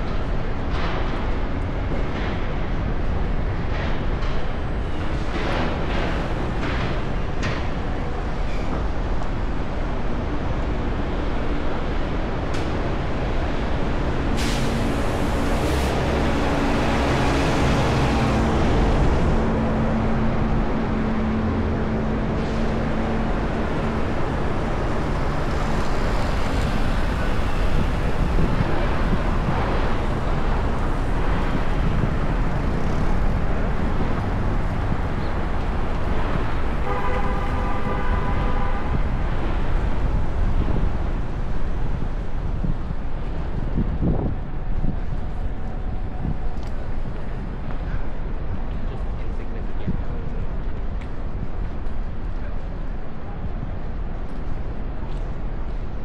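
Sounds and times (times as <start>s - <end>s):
passing vehicles: 0.0s - 56.0s
wind on microphone: 0.0s - 56.0s
vehicle engine hum: 9.1s - 38.0s.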